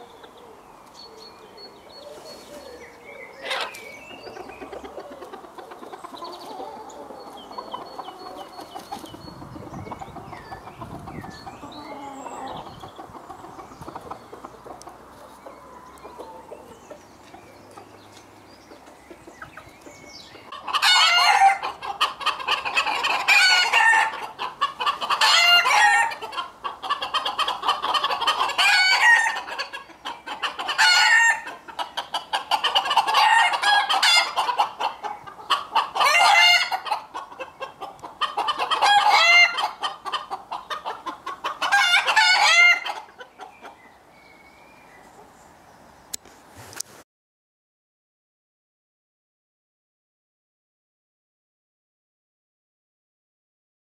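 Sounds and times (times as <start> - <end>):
chickens clucking: 0.0 - 44.4
roosters crowing: 2.1 - 18.1, 20.0 - 37.4, 38.2 - 43.2.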